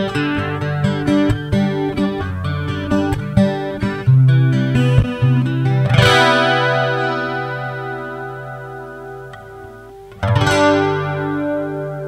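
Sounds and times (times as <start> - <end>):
fingerstyle guitar through amp: 0.0 - 12.0.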